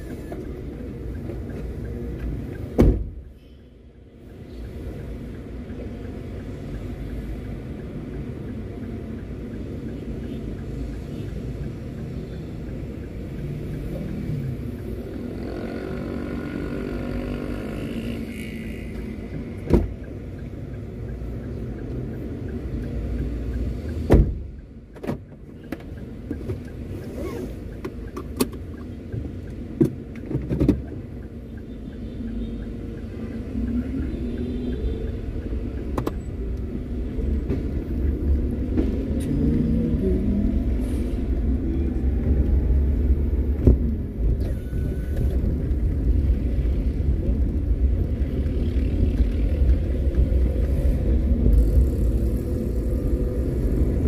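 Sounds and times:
road rumble: 0.0s - 54.0s
car engine: 32.4s - 54.0s.

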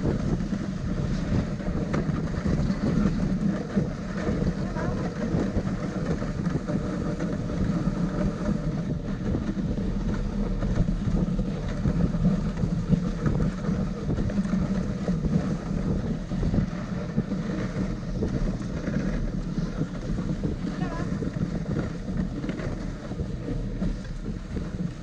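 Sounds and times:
sled gliding over snow: 0.0s - 25.0s
wind buffeting microphone: 0.0s - 25.0s.

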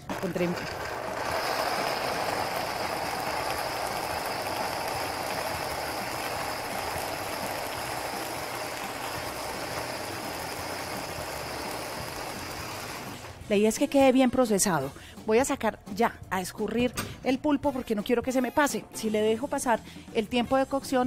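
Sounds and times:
blender running: 0.0s - 13.4s.

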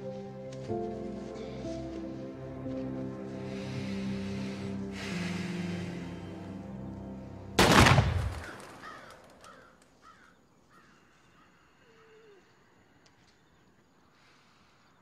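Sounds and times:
crows cawing: 8.2s - 12.2s.

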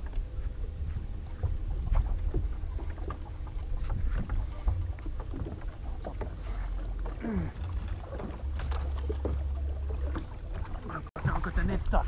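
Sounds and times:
wind buffeting microphone: 0.0s - 12.0s
gear knocking in a boat: 1.3s - 11.5s.

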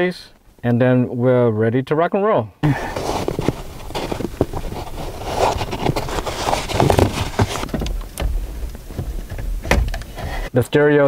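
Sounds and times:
dull low bumps: 2.6s - 10.6s
wiring rustling: 2.6s - 10.9s.

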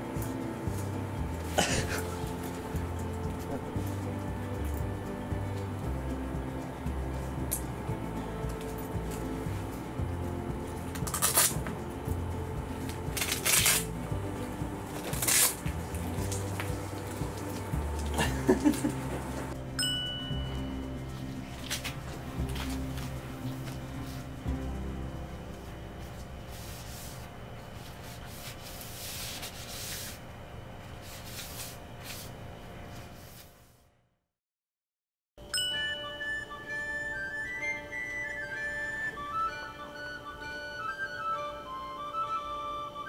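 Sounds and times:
soft background music: 0.0s - 32.3s, 35.4s - 43.0s
cloth wiping wooden floor: 25.6s - 30.3s, 30.9s - 33.8s.

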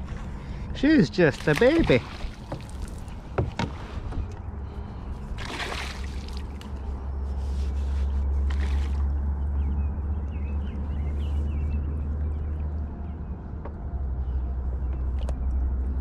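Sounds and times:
short water splash: 1.3s - 3.2s, 5.4s - 6.7s, 8.5s - 9.0s
water sloshing around canoe: 1.3s - 9.1s
light knocks on canoe: 1.4s - 4.4s
wind rumble on microphone: 1.8s - 16.0s.

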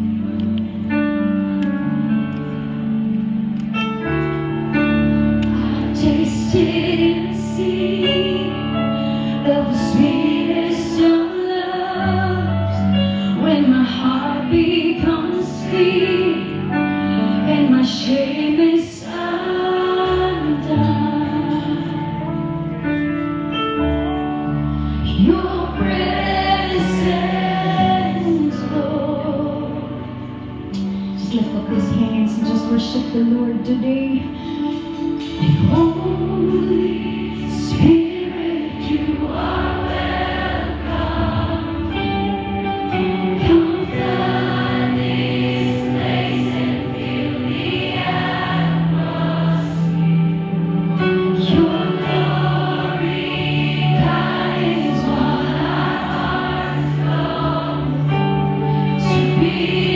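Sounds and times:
live worship band playing: 0.0s - 59.9s
woman singing: 5.8s - 22.2s, 25.1s - 30.0s, 31.2s - 39.8s, 51.4s - 53.1s.

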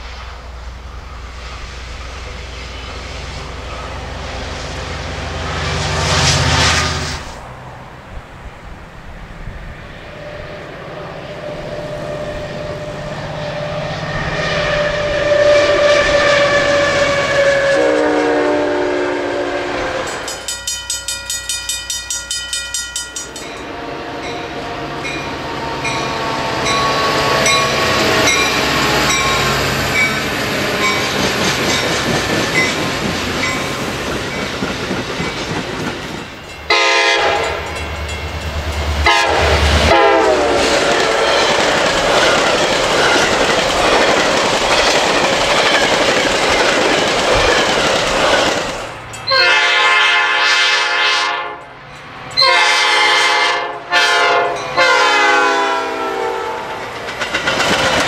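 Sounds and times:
train rumble and wheel clatter: 0.0s - 58.0s
train air horns: 2.6s - 7.4s, 10.1s - 20.4s, 23.6s - 31.1s, 36.7s - 37.9s, 38.8s - 41.6s, 49.3s - 51.7s, 52.4s - 56.8s.

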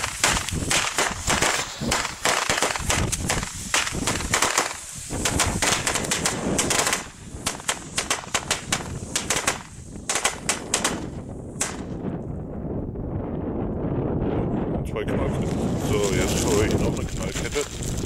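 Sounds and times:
firecracker string banging: 0.0s - 12.1s.

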